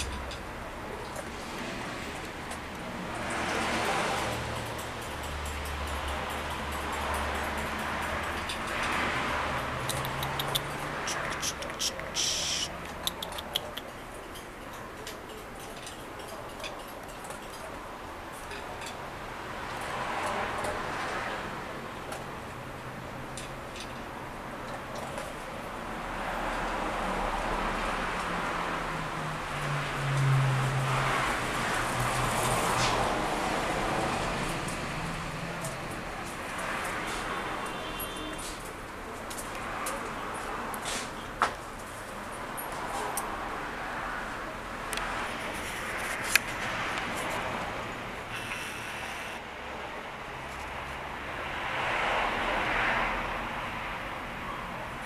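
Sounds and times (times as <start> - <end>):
passing vehicle engine hum: 0.0 - 13.8, 25.9 - 37.8
distant traffic hiss: 8.8 - 13.9, 43.3 - 53.0.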